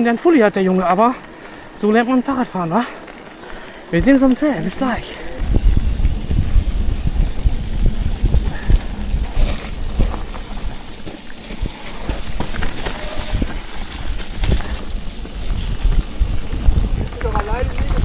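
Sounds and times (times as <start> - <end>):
bike tyres rolling over rough ground: 0.0 - 18.0
steady low rumble: 5.4 - 12.7
bike knocking and rattling: 5.4 - 18.0.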